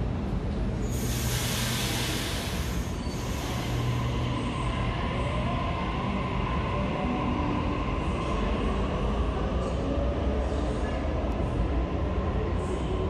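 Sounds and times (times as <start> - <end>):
electric train humming: 0.0 - 9.7
air hiss: 0.9 - 4.1.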